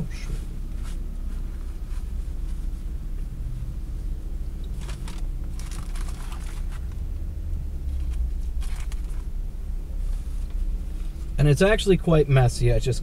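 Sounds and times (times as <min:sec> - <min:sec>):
steady low rumble: 0:00.0 - 0:13.0
paper crinkling and rustling: 0:04.8 - 0:07.0, 0:08.0 - 0:09.3.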